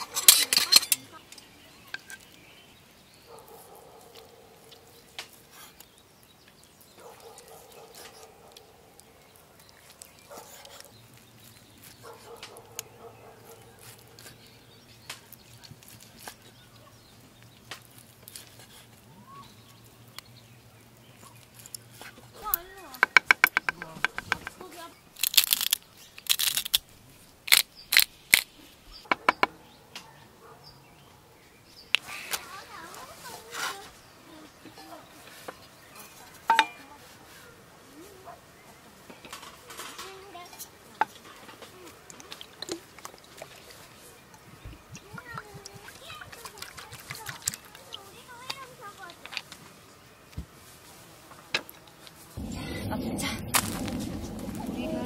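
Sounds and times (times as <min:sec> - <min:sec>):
pepper grinder grinding: 0:25.2 - 0:26.8.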